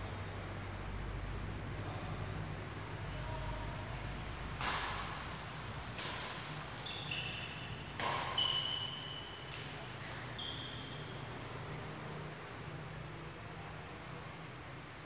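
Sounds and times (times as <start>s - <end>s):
racket hitting shuttlecock: 4.6s - 10.8s.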